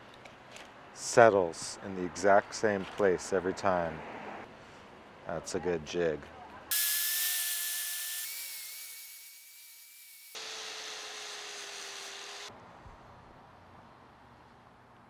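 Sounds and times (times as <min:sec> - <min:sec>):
angle grinder grinding: 0:06.7 - 0:12.5.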